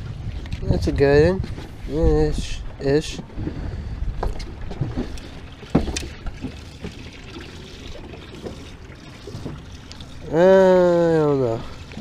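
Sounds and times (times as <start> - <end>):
waves lapping against boat hull: 0.0 - 12.0
light knocks on boat: 5.7 - 7.0.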